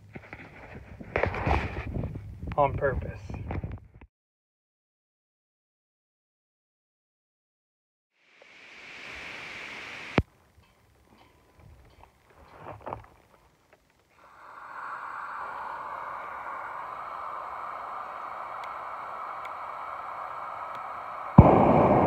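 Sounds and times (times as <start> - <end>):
torch rushing hiss: 8.2 - 10.2, 14.2 - 22.0.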